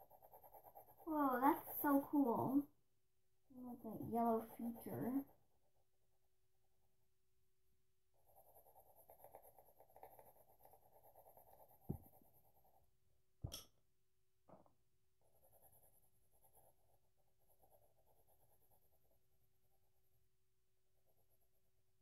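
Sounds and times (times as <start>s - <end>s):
colored pencil scratching on paper: 0.0s - 2.8s, 3.5s - 6.0s, 8.1s - 13.0s, 15.2s - 20.0s, 21.0s - 21.6s.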